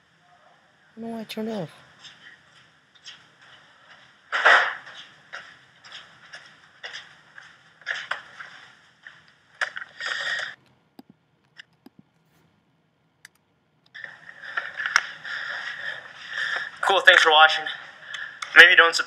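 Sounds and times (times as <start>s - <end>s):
knocks and clicks: 10.6s - 12.3s.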